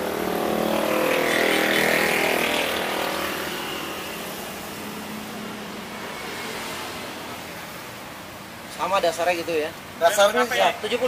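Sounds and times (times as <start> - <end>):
vehicle passing by: 0.0 - 8.4.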